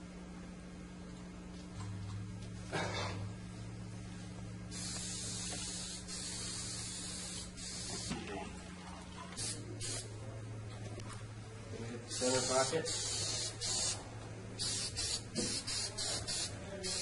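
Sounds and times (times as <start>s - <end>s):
spray adhesive hissing: 4.7s - 8.2s, 9.4s - 10.1s, 12.1s - 14.0s, 14.6s - 17.0s.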